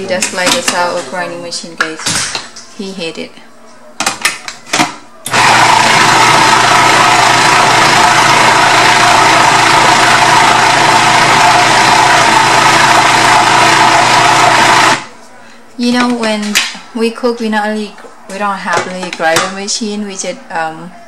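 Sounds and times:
food processor motor whine: 5.3s - 15.1s.

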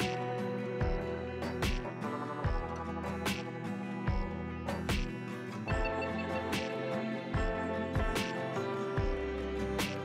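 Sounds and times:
instrumental music with steady beat: 0.0s - 10.0s.

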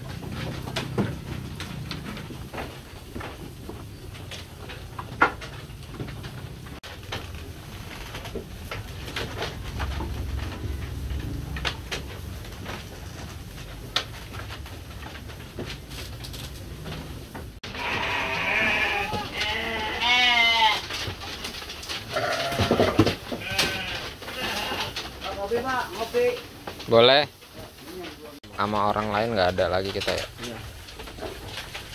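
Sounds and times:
rustling and small knocks: 0.0s - 31.9s
sheep feeding at wooden troughs: 0.0s - 31.9s
sheep bleating: 17.6s - 20.8s, 22.1s - 25.0s.

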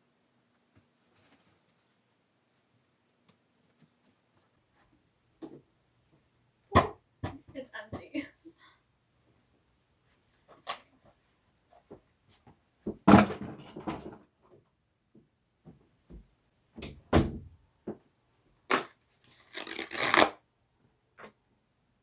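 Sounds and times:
rustling: 0.6s - 4.9s
household objects knocking and thumping: 6.7s - 8.1s, 12.8s - 14.3s.

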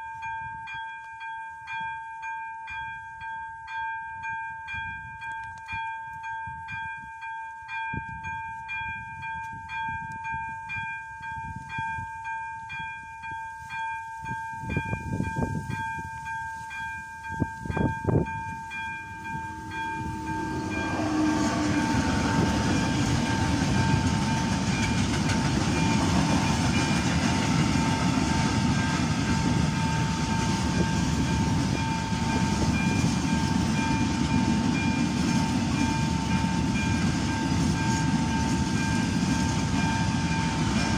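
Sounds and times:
electronic crossing bell pulsing: 0.0s - 40.9s
freight train wagons rumbling: 14.5s - 40.9s.

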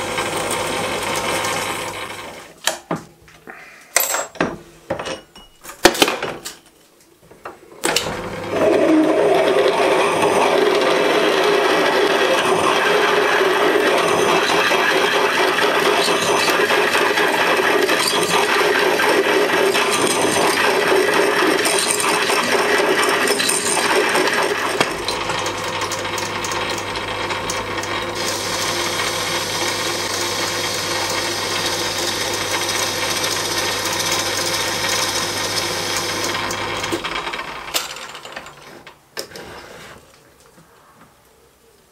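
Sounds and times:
boring bar cutting: 7.8s - 37.6s
metal lathe running: 8.0s - 37.8s
drill cutting metal: 8.1s - 37.4s.

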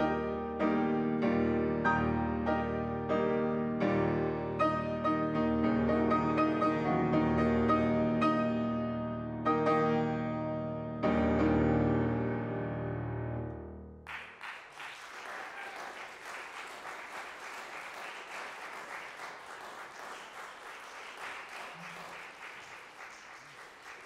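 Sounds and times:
audience applause: 14.1s - 24.0s.

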